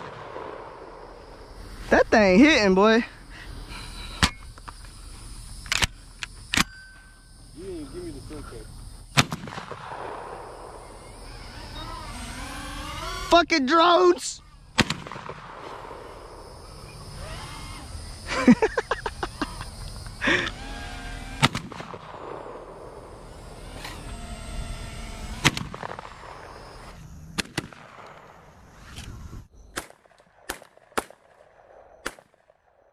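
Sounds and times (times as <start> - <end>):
gunshots: 0.0 - 1.2, 9.2 - 11.0, 14.8 - 16.4, 21.4 - 23.1, 25.4 - 26.4, 27.4 - 28.4, 29.8 - 32.6.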